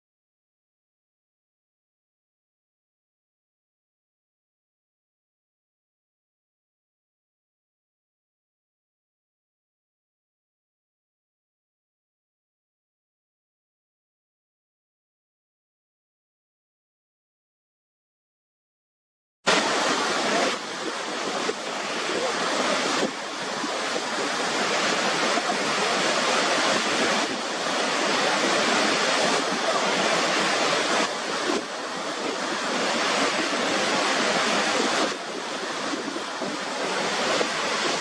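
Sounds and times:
waterfall roaring: 0:19.5 - 0:38.0.

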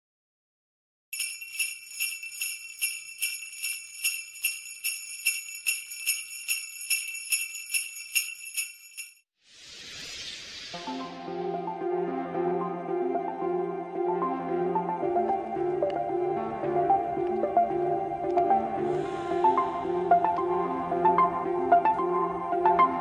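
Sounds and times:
sleigh bells jingling: 0:01.2 - 0:09.3
whoosh: 0:09.4 - 0:11.4.

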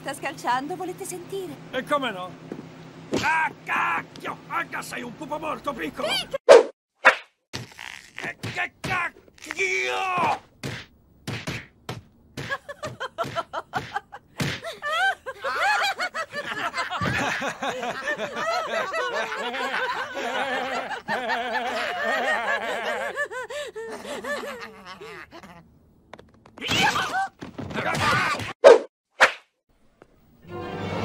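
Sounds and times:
cartoon character laughing: 0:06.0 - 0:06.4, 0:12.5 - 0:25.7.

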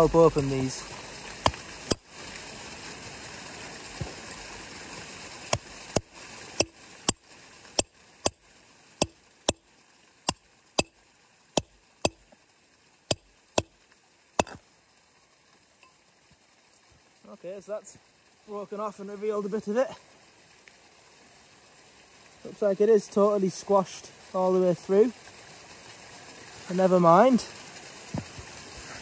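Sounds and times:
hammer striking chisel on stone: 0:05.5 - 0:07.2, 0:14.4 - 0:14.6.

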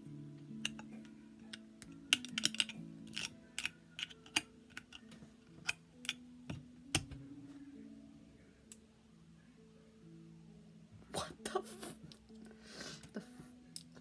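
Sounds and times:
soft instrumental music: 0:00.0 - 0:14.0
fingernails clicking on metal can: 0:01.5 - 0:05.0.

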